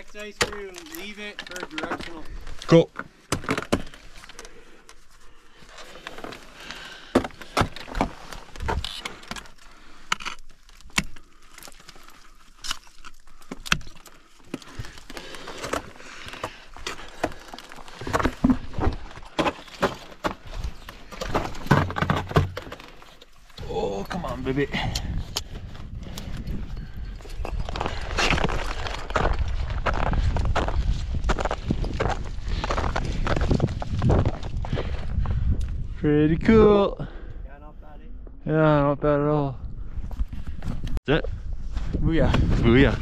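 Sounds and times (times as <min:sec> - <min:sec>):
metal climbing gear jangling: 0:08.7 - 0:16.3, 0:22.9 - 0:29.6.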